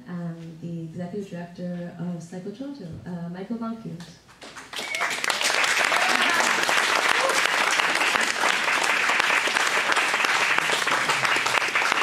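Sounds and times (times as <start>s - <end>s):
audience applauding: 4.4s - 12.0s.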